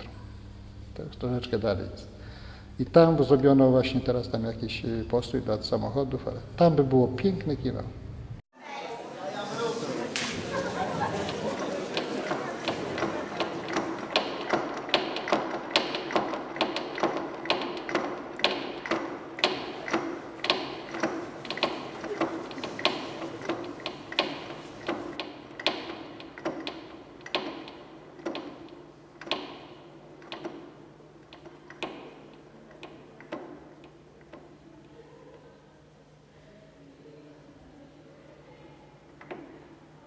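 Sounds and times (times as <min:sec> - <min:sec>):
low steady hum: 0:00.0 - 0:40.0
projector mechanism clicking: 0:10.2 - 0:35.0, 0:39.0 - 0:40.0.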